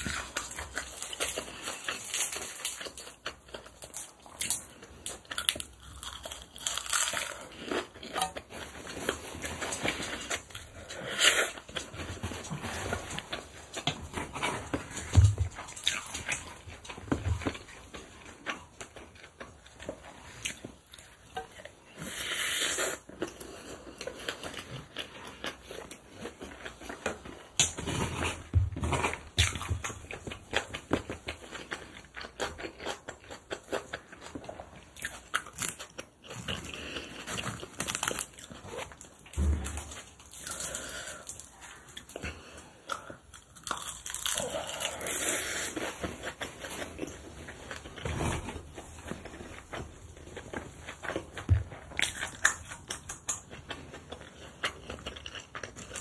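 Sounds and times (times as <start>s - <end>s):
chewing and crunching: 0.0s - 56.0s.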